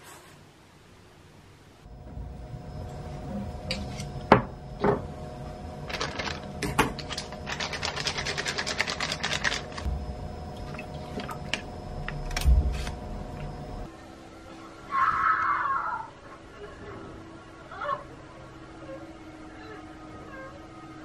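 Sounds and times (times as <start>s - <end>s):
appliance hum: 1.2s - 15.1s.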